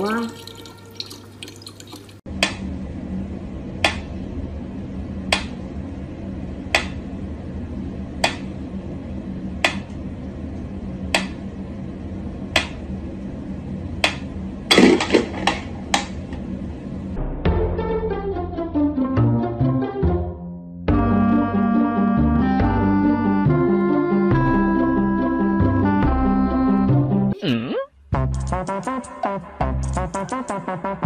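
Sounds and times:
knocks and clicks: 9.6 - 10.0.

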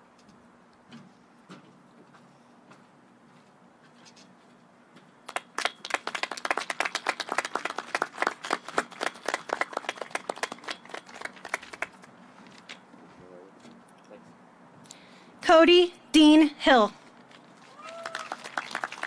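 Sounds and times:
people clapping: 5.2 - 12.2, 17.6 - 19.0.

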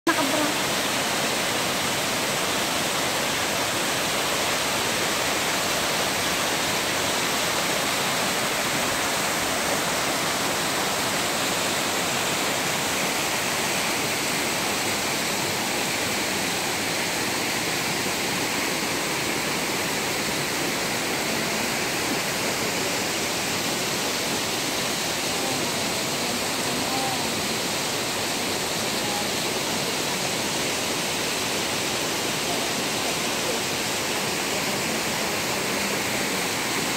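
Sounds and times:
waterfall pouring over rocks: 0.1 - 36.9.

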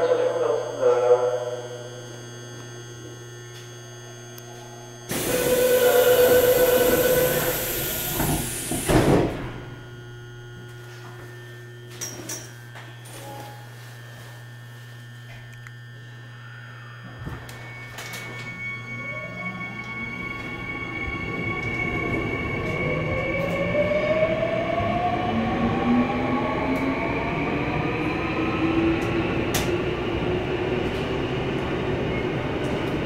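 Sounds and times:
warning tone: 0.0 - 28.4
electrical hum: 0.0 - 33.0
traction motor whine: 0.0 - 33.0
door hissing: 5.1 - 9.4
doors shutting thud: 8.1 - 9.7.

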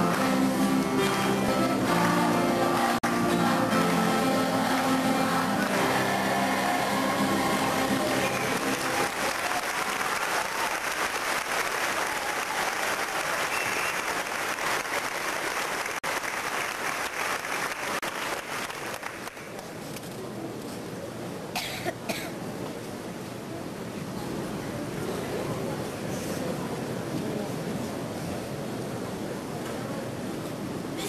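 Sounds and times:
audience applauding: 0.0 - 19.6.

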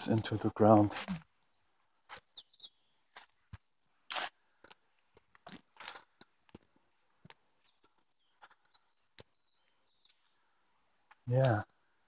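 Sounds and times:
faint bird chirps: 1.0 - 4.1, 7.5 - 12.0.

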